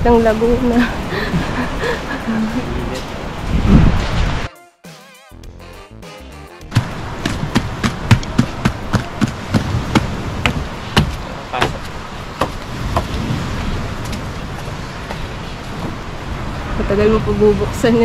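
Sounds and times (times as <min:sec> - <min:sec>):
flip-flop footsteps on wooden deck: 0:06.7 - 0:13.2.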